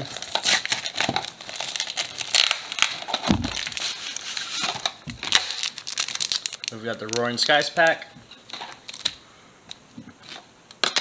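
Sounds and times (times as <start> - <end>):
plastic wrap and foil crinkling: 0.0 - 9.2.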